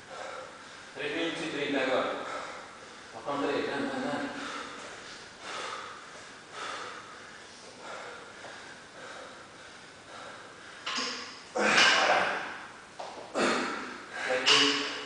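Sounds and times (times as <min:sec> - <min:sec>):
man breathing hard: 0:00.0 - 0:01.0, 0:02.1 - 0:03.2, 0:04.2 - 0:12.5
man grunting: 0:11.6 - 0:12.5.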